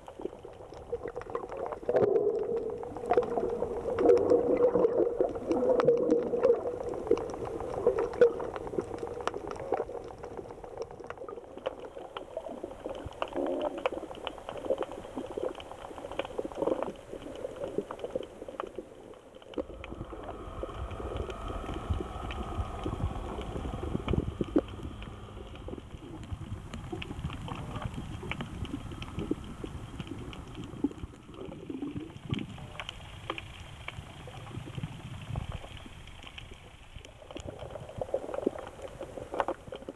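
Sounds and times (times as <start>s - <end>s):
underwater clicks crackling: 0.0s - 39.9s
low rumble: 19.1s - 31.4s
watery hiss: 19.5s - 27.2s.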